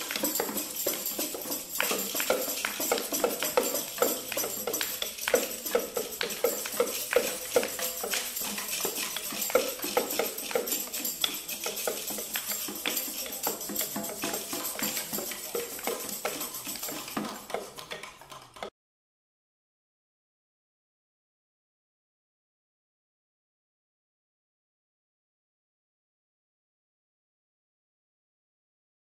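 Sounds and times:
overlapping taps and knocks: 0.0 - 18.7.

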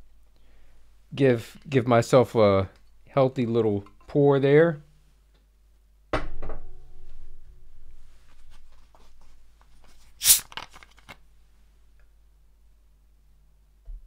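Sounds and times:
bottle cap clicks: 10.2 - 10.6
bottle cap hiss: 10.2 - 10.6.

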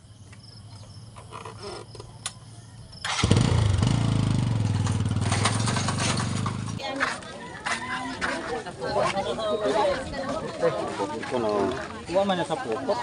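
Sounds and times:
motorcycle engine starting and running: 3.0 - 6.9.

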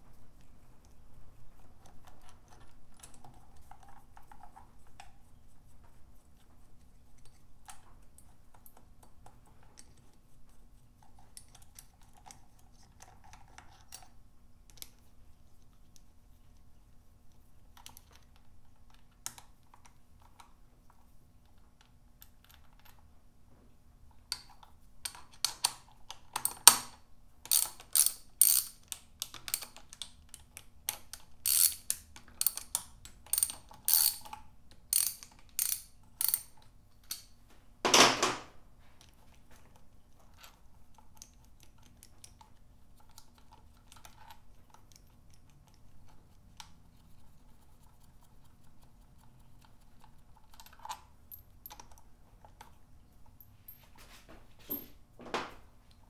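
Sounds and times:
hand ratchet clicking: 27.5 - 28.8, 31.4 - 34.3, 34.9 - 37.3
ratchet clatter: 27.5 - 29.8, 31.4 - 37.3.

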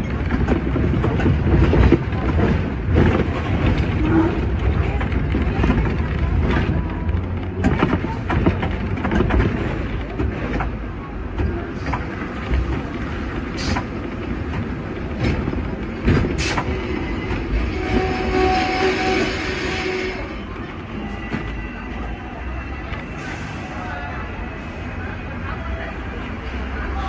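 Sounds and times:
wheels knocking on rails: 0.0 - 16.8
tram rumbling: 0.0 - 27.0
tram wheel squeal: 15.2 - 27.0.

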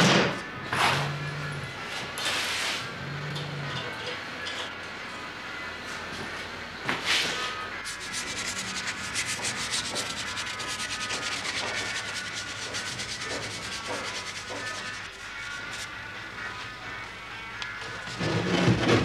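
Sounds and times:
hand rubbing on wood: 7.8 - 15.9
loud scrape on wood: 7.8 - 15.9.

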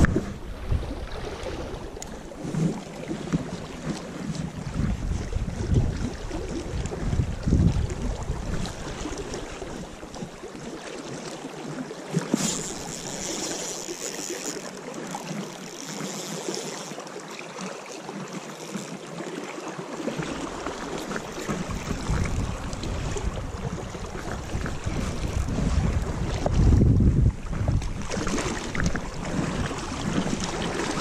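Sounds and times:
wind buffeting microphone: 0.0 - 2.8, 4.3 - 10.3, 20.5 - 31.0
river water flowing: 0.0 - 26.4, 27.9 - 31.0
fishing reel cranking: 12.2 - 17.2, 18.3 - 19.0, 20.9 - 22.8.

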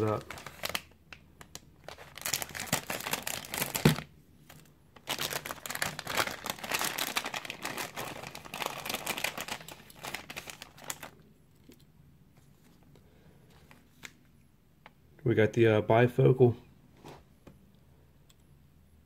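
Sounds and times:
plastic pouch crinkling: 0.0 - 11.8.

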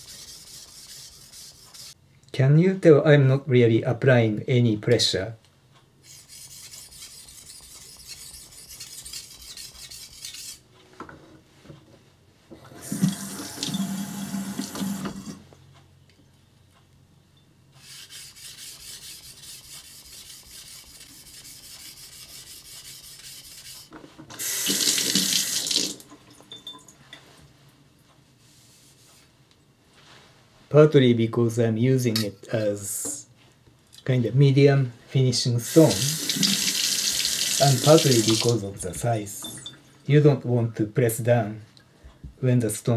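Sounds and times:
blade rasping on whetstone: 0.0 - 2.0, 6.0 - 10.6, 17.8 - 23.9.

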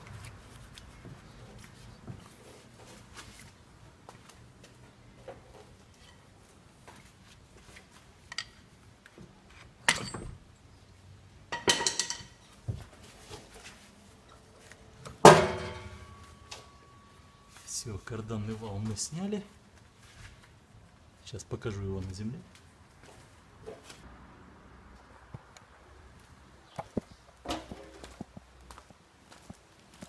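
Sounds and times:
metal clanks: 9.8 - 10.4, 11.5 - 12.4, 15.2 - 17.1.

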